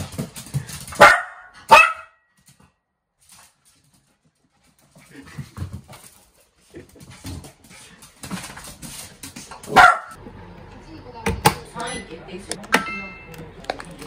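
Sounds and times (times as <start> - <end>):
dog barking sharply: 1.0 - 2.2, 9.7 - 10.2.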